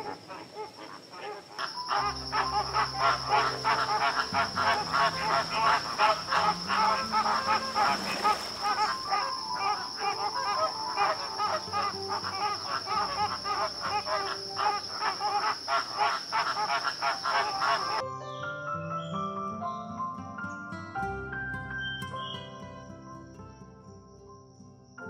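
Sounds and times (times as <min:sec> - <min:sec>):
flock of flamingos calling: 0:00.0 - 0:18.0
soft background music: 0:01.2 - 0:25.0.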